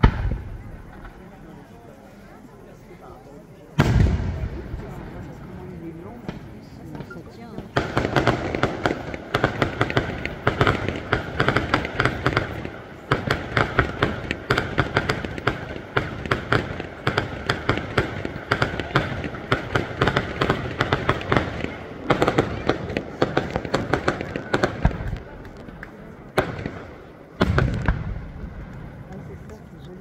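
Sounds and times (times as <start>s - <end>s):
fireworks popping and crackling: 0.0s - 2.0s, 3.8s - 30.0s.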